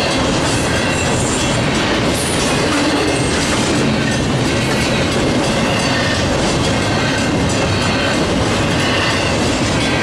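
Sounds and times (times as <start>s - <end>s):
freight train wheels on rails: 0.0s - 10.0s.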